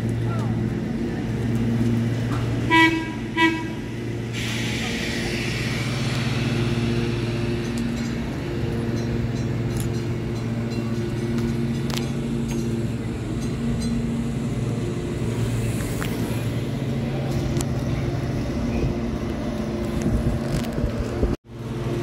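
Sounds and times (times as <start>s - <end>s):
streetcar warning toots: 0.1s - 19.8s
low hum: 0.9s - 21.1s
hiss: 3.8s - 9.0s.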